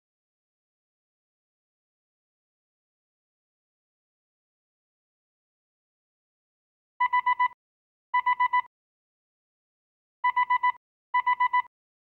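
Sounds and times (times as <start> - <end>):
quick high warning beeps: 10.2 - 11.7.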